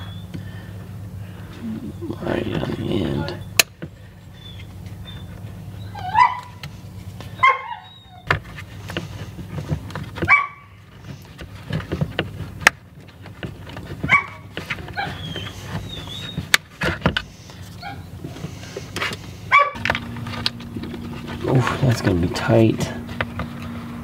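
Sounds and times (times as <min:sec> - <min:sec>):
dog barking: 0:06.0 - 0:06.6, 0:07.4 - 0:07.9, 0:10.3 - 0:10.7, 0:14.1 - 0:14.4, 0:19.5 - 0:19.8.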